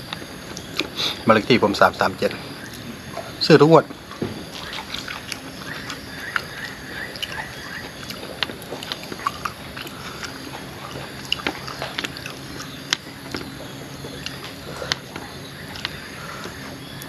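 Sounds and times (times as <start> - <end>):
faint steady hum: 0.0 - 17.0
person chewing: 4.5 - 16.7.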